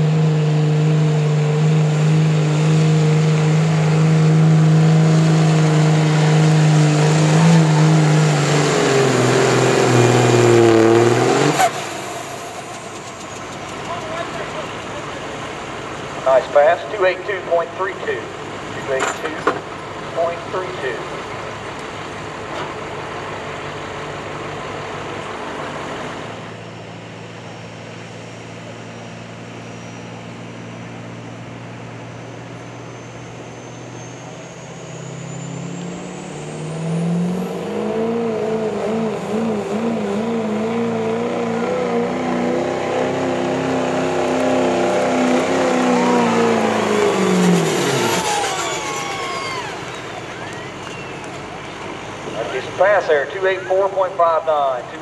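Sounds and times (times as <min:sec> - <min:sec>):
diesel pickup engine revving: 0:00.0 - 0:55.0
turbo whistle: 0:47.6 - 0:51.3.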